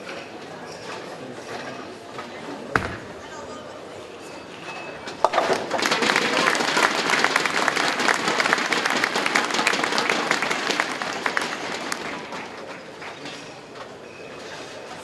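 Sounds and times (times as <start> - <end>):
audience applause: 5.3 - 13.2.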